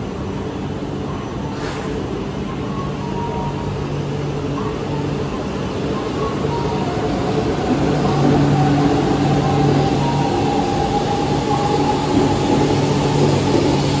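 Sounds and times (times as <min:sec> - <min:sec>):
train running gear humming: 0:00.0 - 0:14.0
brief hiss: 0:01.6 - 0:02.1.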